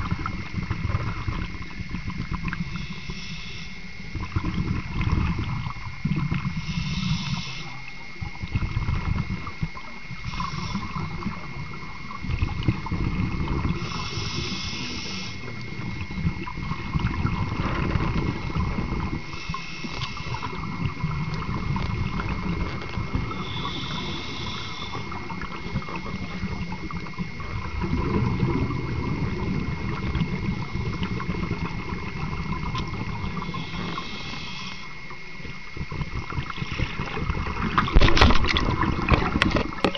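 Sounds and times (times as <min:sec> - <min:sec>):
bubbling of exhaled air: 0:00.0 - 0:39.9
scuba regulator hiss: 0:02.7 - 0:03.9, 0:06.6 - 0:07.8, 0:10.2 - 0:11.3, 0:13.8 - 0:15.5, 0:19.3 - 0:20.6, 0:23.3 - 0:25.2, 0:33.4 - 0:35.0.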